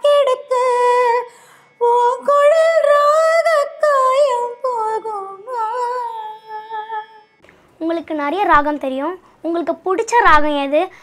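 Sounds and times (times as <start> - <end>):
woman singing unaccompanied: 0.0 - 8.1.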